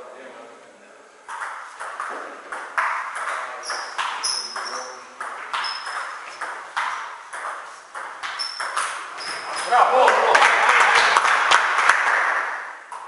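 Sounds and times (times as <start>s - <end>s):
table tennis ball clicking: 1.3s - 9.7s.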